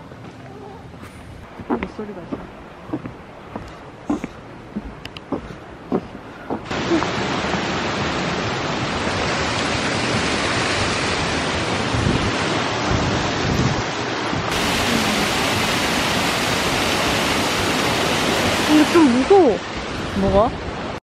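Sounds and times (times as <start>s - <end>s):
waterfall rushing: 1.5s - 21.0s
wind buffets on microphone: 9.2s - 20.9s.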